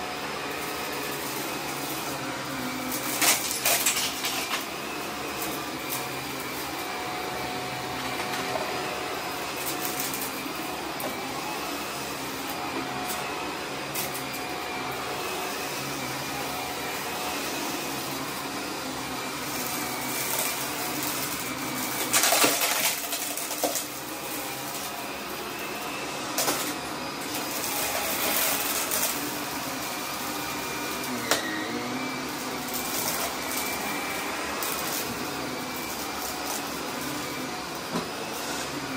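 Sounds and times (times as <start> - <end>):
vacuum cleaner running: 0.0 - 38.9
confetti crackling in vacuum: 3.0 - 4.7, 22.0 - 24.0.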